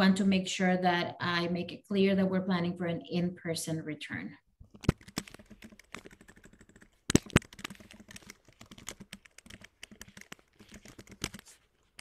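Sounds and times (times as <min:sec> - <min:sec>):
computer keyboard typing: 0:04.7 - 0:12.0.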